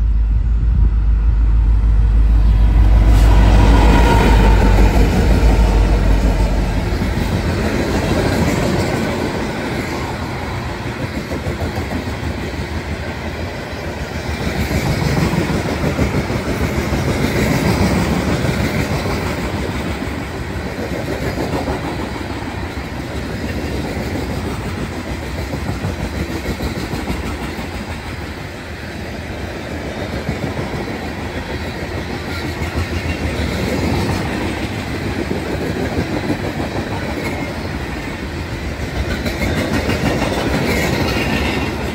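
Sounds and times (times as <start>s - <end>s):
locomotives low rumble: 0.0s - 9.3s
freight train wheels rumbling on rails: 0.0s - 41.9s
wheels clacking over rail joints: 30.2s - 41.9s.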